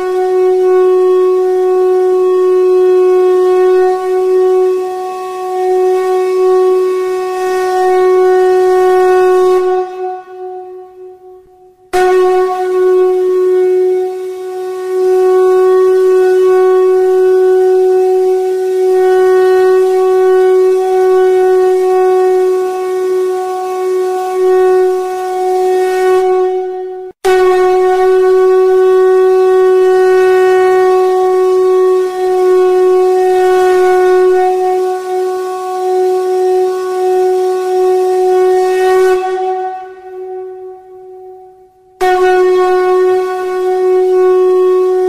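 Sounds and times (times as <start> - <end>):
wind instrument drone: 0.0 - 26.7.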